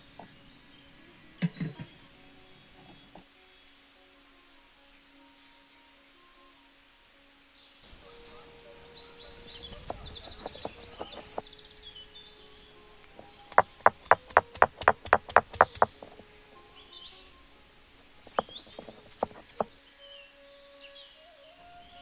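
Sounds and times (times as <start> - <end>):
stone roller knocking on grinding stone: 9.8 - 11.4, 13.5 - 16.2, 18.3 - 19.7.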